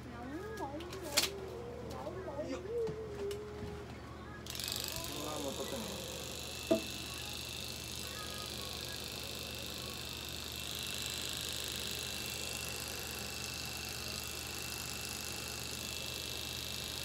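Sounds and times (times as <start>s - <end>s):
electric clippers buzzing: 4.4s - 17.0s.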